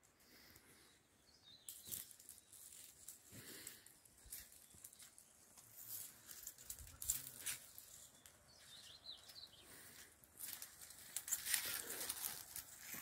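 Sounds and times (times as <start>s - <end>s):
bird chirping: 0.8s - 2.9s, 7.5s - 10.1s.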